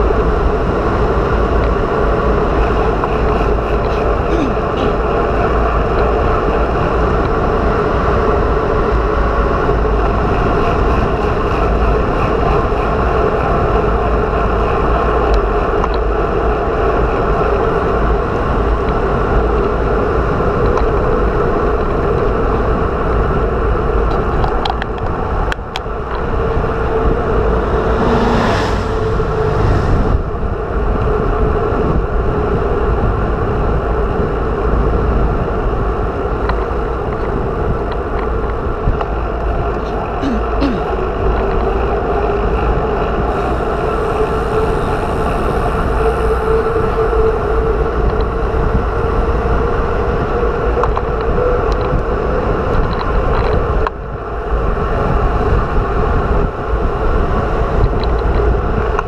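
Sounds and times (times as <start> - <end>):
wind buffeting microphone: 0.0 - 59.0
motorcycle passing: 25.9 - 31.0.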